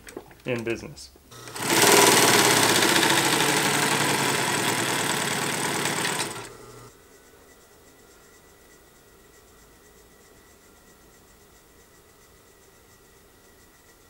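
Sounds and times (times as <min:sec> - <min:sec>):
sewing machine running: 0:01.3 - 0:06.9.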